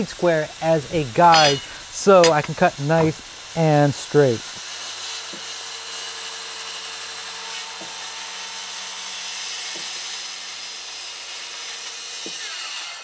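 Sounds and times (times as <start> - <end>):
circular saw cutting wood: 0.0 - 13.0.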